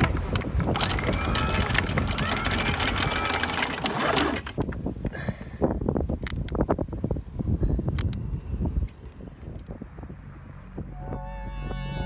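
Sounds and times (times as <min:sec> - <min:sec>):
anchor chain clattering: 0:00.0 - 0:04.6.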